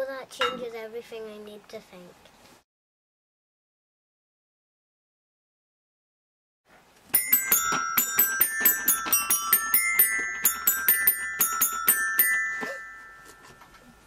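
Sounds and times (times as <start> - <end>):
toy xylophone notes: 7.1 - 14.0.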